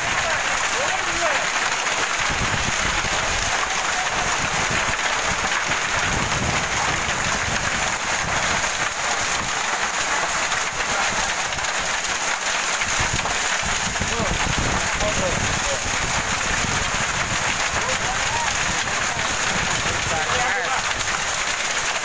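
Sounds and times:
heavy rain pouring: 0.0 - 22.0
wind buffeting microphone: 2.2 - 9.5, 12.9 - 21.2.

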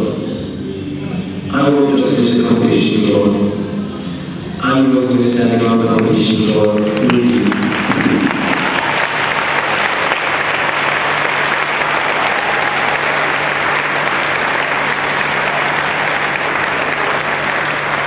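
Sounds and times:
audience applauding: 5.6 - 18.0.

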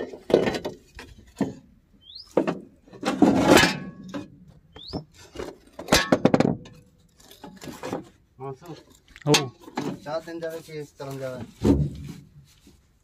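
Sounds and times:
bird rising chirp: 2.0 - 2.4, 4.7 - 5.1.

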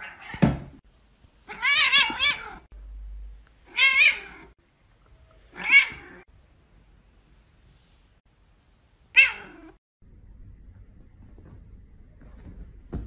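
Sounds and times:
cat meowing: 1.5 - 2.7, 3.7 - 4.5, 5.5 - 6.2.

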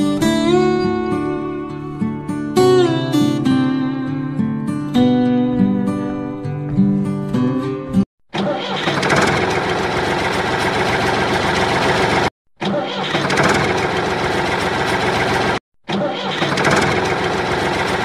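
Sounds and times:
strummed guitar music: 0.0 - 8.0
tractor engine running: 8.4 - 18.0.

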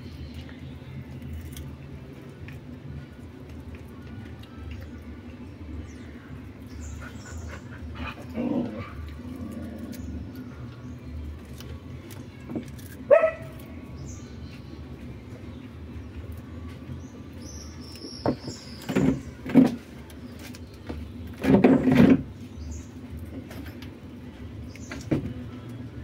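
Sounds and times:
cat growling: 8.0 - 10.3.

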